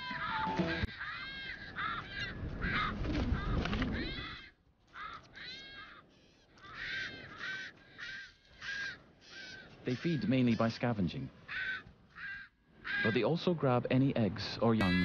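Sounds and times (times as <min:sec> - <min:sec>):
birds calling rapidly: 0:00.0 - 0:15.0.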